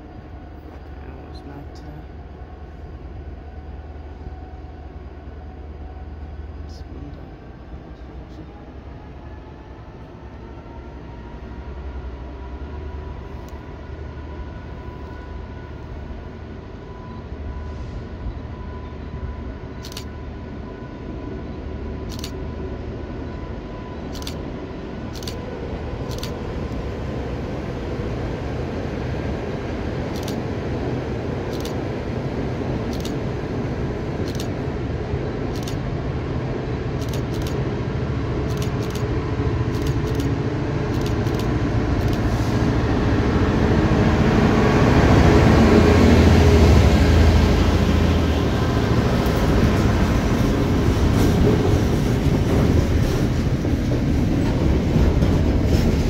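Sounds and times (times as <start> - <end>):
diesel locomotive engine drone: 0.0 - 56.0
sharp clicks: 19.8 - 20.1, 24.1 - 24.4, 25.1 - 25.4, 26.1 - 26.4, 30.1 - 30.4, 31.5 - 31.8, 32.9 - 33.2, 34.2 - 34.6, 35.5 - 35.8, 37.0 - 37.6, 38.4 - 39.1, 39.7 - 42.3.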